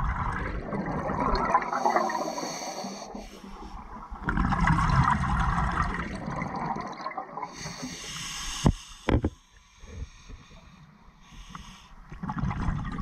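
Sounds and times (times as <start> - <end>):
underwater bubbling: 0.0 - 8.2, 12.1 - 13.0.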